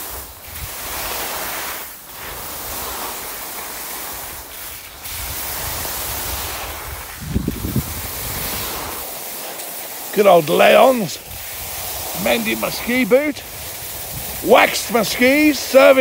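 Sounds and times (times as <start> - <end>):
skis hissing over snow: 0.0 - 16.0
wind buffeting microphone: 4.2 - 9.1, 11.2 - 16.0.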